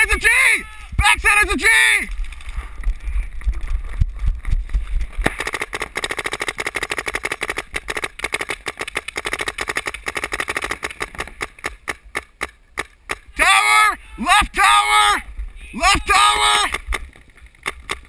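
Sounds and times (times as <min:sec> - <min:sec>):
paintball marker firing rapidly: 0:05.2 - 0:13.3, 0:16.7 - 0:18.0.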